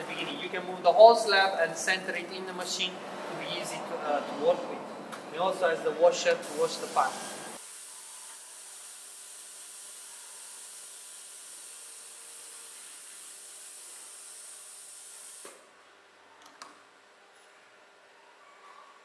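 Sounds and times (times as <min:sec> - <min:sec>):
water sprayer hissing: 0:06.4 - 0:15.5.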